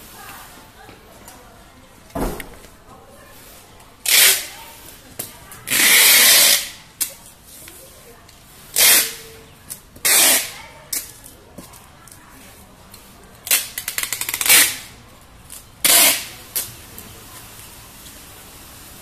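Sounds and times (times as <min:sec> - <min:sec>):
packing tape ripping: 0:04.0 - 0:04.5, 0:05.7 - 0:07.1, 0:08.8 - 0:09.2, 0:10.0 - 0:11.1, 0:13.4 - 0:16.7
tape crackles: 0:12.9 - 0:18.2.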